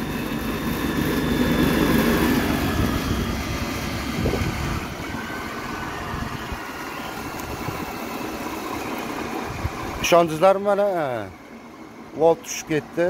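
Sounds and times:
electric motor whirring down: 0.0s - 10.3s.

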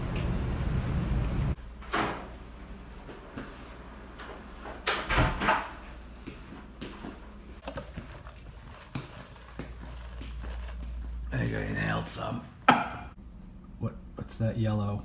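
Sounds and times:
footsteps in a small room: 1.6s - 4.8s, 5.5s - 12.4s.

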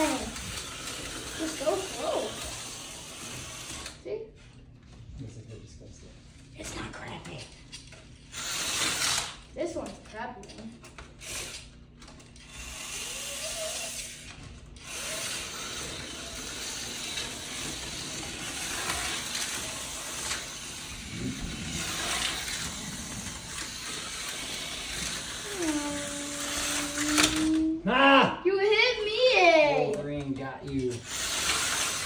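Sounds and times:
slot car motor whirring: 0.0s - 4.0s, 8.3s - 9.5s, 11.0s - 27.8s, 30.9s - 32.0s.

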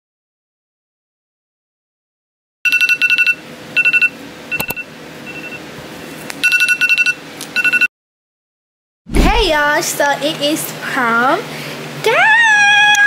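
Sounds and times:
smartphone alarm beeping: 2.7s - 5.6s, 6.4s - 7.9s.

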